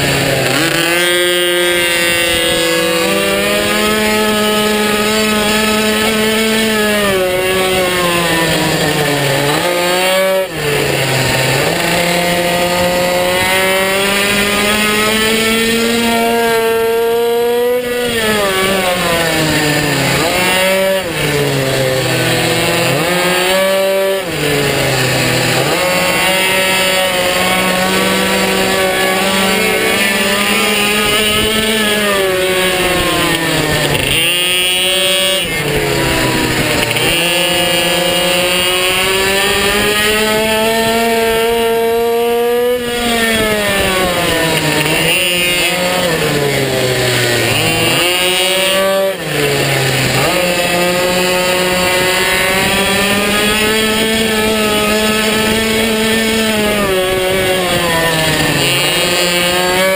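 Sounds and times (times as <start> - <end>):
minibike engine revving: 0.0 - 59.9.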